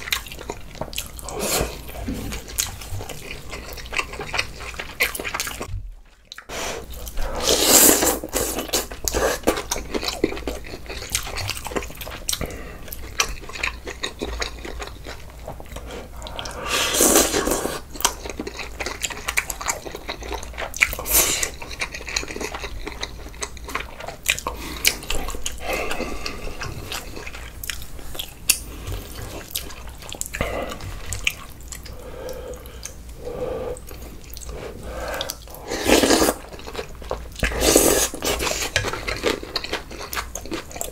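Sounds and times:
wet chewing and smacking: 0.0 - 16.6, 17.2 - 33.2, 33.8 - 40.9
slurping: 6.4 - 10.1, 15.8 - 17.9, 28.7 - 36.8.

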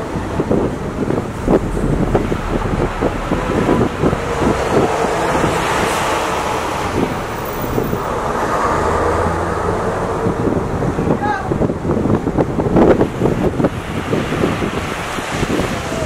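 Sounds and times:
wind buffeting microphone: 0.0 - 16.0
sea waves washing: 1.1 - 10.1.

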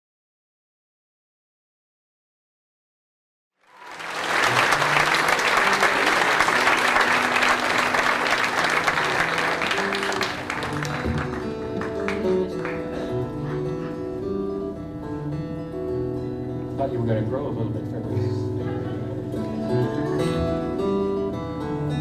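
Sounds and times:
audience applauding: 3.6 - 14.0
plucked guitar and bass: 10.5 - 22.0.

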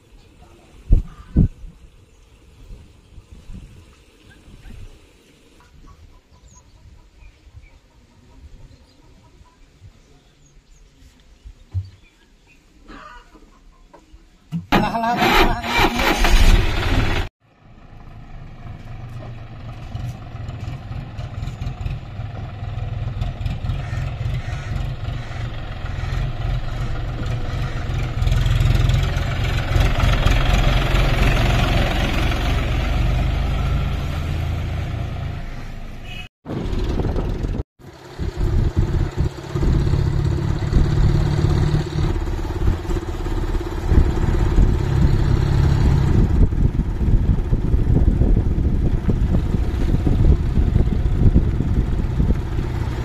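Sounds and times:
tractor diesel engine under load: 14.7 - 53.0.

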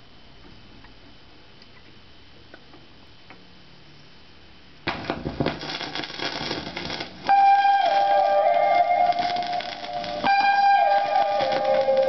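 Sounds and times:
vinyl surface hiss: 0.0 - 12.0
recorded music: 4.9 - 12.0.

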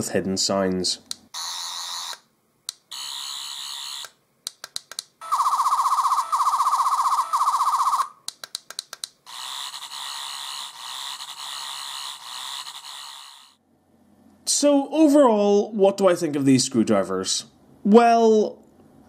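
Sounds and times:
toy warbling buzz: 1.4 - 2.2, 2.9 - 4.2, 5.2 - 8.1, 9.3 - 13.6.

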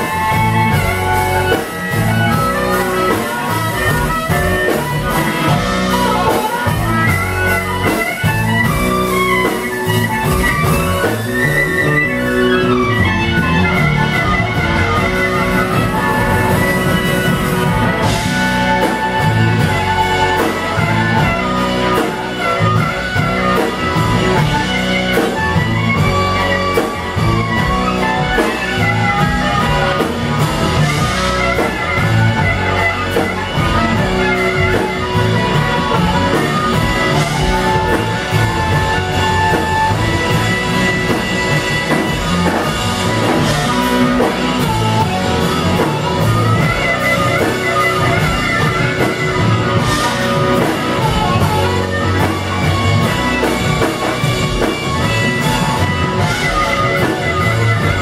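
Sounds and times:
amplified harmonica: 0.0 - 58.0
blues-rock band playing: 0.0 - 58.0.

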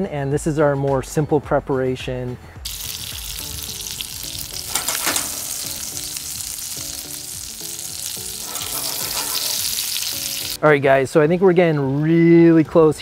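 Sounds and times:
fish frying in butter: 2.7 - 10.6
oil crackling and spitting: 2.7 - 10.6.

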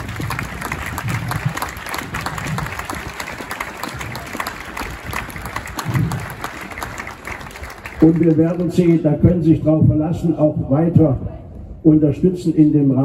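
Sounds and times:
crowd applauding: 0.0 - 9.0.

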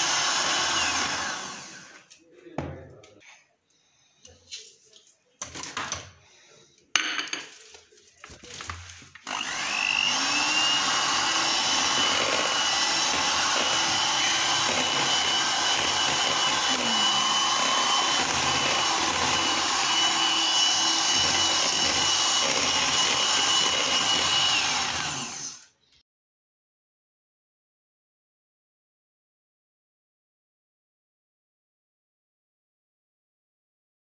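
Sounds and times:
electric hand mixer running: 0.0 - 2.1, 9.2 - 25.7.

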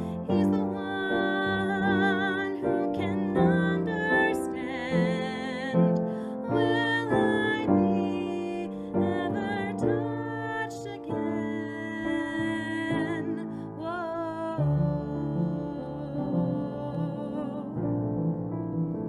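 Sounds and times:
woman singing with vibrato: 0.0 - 18.2
piano accompaniment: 0.0 - 19.0.

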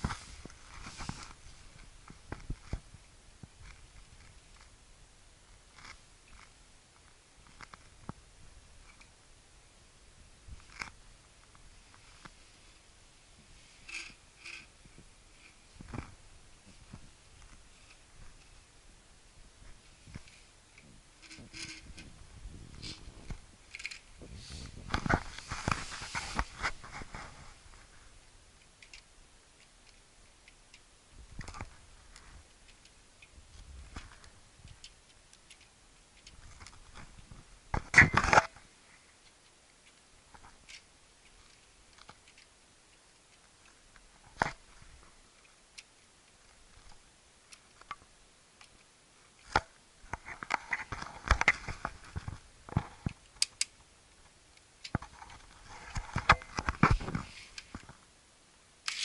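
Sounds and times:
plastic parts clicking and rattling: 5.7 - 6.6, 13.8 - 18.6, 20.1 - 24.2, 28.6 - 38.6, 39.2 - 53.9.

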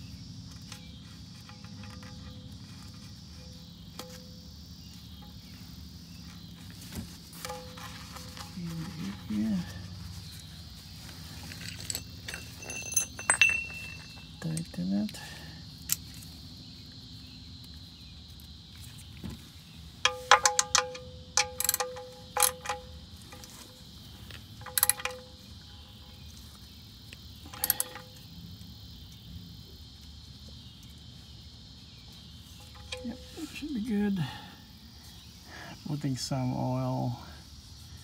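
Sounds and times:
ratchet clicking: 20.1 - 22.8, 24.6 - 25.2, 27.5 - 28.0.

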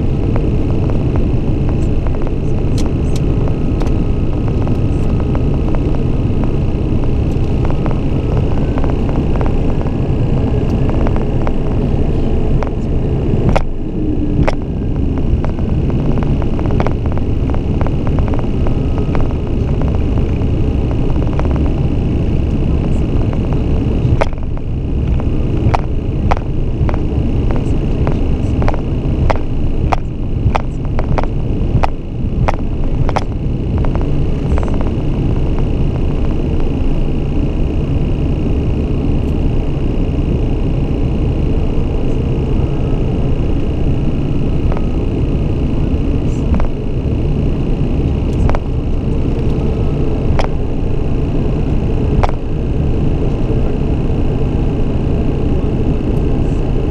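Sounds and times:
turboprop cabin drone: 0.0 - 56.9
sharp clicks: 23.2 - 35.8, 52.1 - 52.5.

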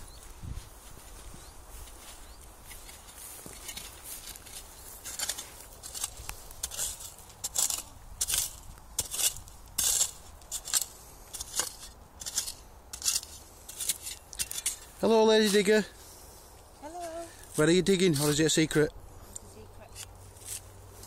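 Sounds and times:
metal spade digging into soil: 2.7 - 15.7, 19.8 - 20.7.

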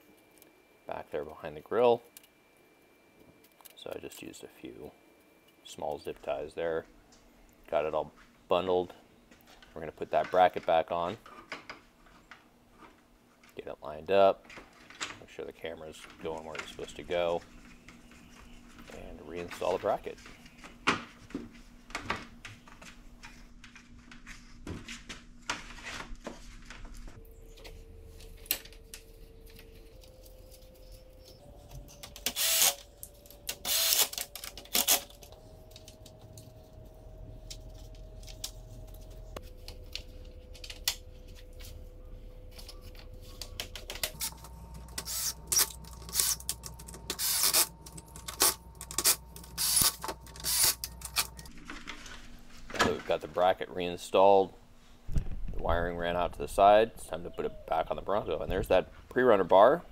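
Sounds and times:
cordless drill driving screws: 32.2 - 32.8, 33.6 - 34.2, 45.0 - 46.5, 47.1 - 47.7, 48.4 - 51.3.

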